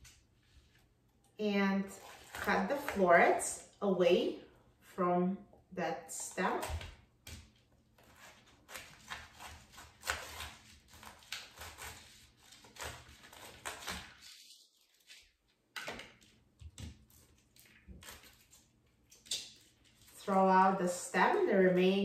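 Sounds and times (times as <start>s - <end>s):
knife cutting cauliflower: 1.8s - 3.7s, 6.2s - 15.3s.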